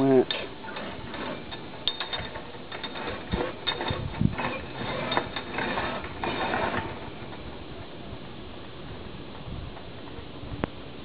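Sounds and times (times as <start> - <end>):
metal chain clinking and rattling: 0.3 - 7.5.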